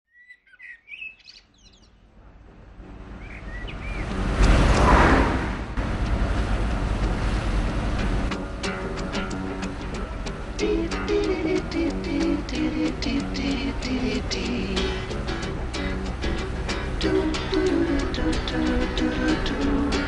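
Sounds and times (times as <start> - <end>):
birds chirping: 0.1 - 5.3
engine and road drone inside car: 1.8 - 20.0
old car driving past: 1.8 - 20.0.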